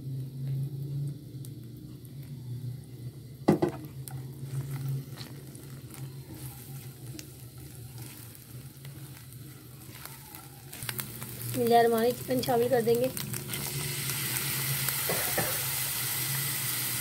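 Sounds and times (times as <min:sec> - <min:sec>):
onions sizzling in oil: 0:00.0 - 0:17.0
steady low hum: 0:00.0 - 0:17.0
spatula stirring in a pan: 0:04.4 - 0:12.3.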